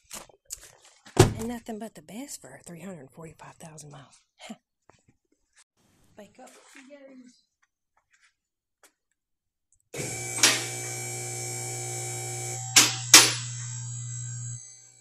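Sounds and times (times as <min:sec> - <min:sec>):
hydraulic pump motor humming: 0:10.0 - 0:15.0.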